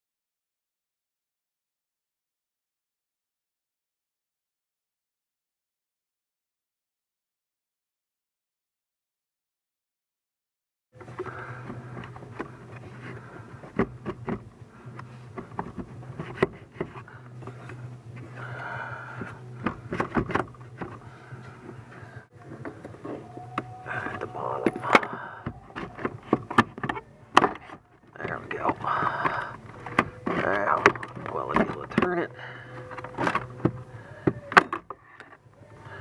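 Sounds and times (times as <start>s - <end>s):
scraping on plastic: 11.0s - 36.0s
steady low hum: 11.0s - 36.0s
clicks and knocks on plastic: 11.1s - 17.8s, 19.2s - 21.0s, 23.5s - 32.2s.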